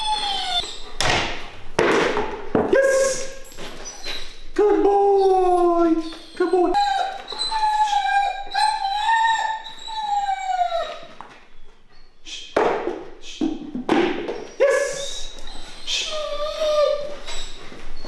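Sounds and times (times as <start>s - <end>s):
dog whining: 0.0s - 1.0s, 3.0s - 12.3s, 14.4s - 18.0s.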